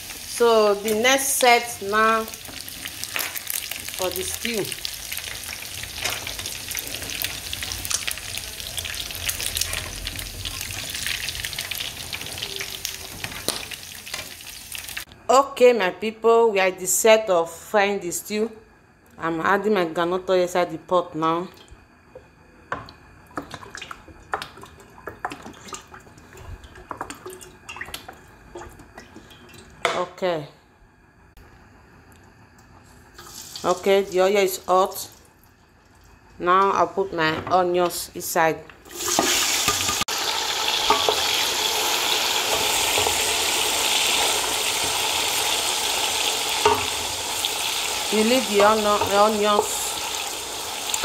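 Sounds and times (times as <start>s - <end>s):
hot oil popping and crackling: 2.1s - 15.1s, 38.9s - 51.0s.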